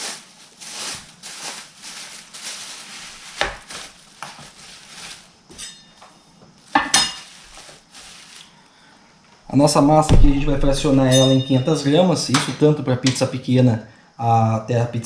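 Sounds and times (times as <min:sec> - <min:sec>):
plastic bag crinkling: 0:00.0 - 0:05.5, 0:06.6 - 0:08.6.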